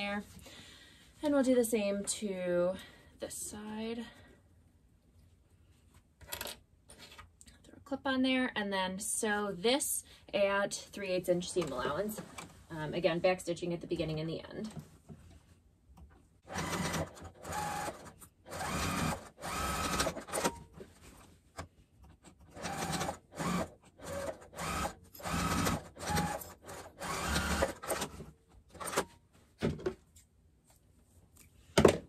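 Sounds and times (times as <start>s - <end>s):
sewing machine stitching: 16.5s - 20.6s, 22.5s - 29.1s.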